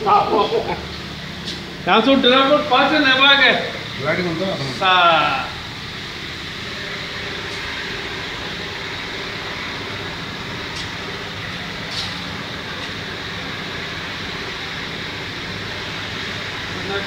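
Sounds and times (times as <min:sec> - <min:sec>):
low mechanical rumble: 0:00.0 - 0:17.0.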